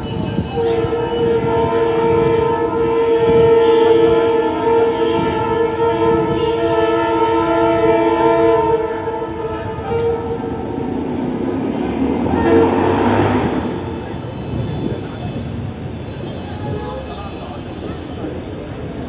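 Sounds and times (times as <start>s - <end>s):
train horn blast: 0.0s - 18.8s
rushing rail noise: 0.0s - 19.0s.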